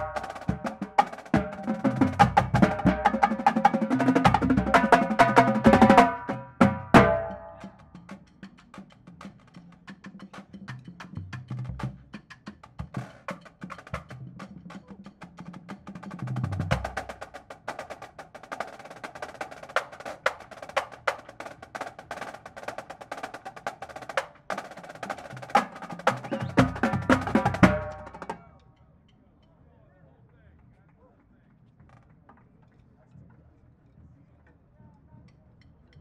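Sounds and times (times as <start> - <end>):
bass drum notes: 0.0 - 7.8, 26.2 - 28.4
marching drums playing fast: 0.0 - 28.5.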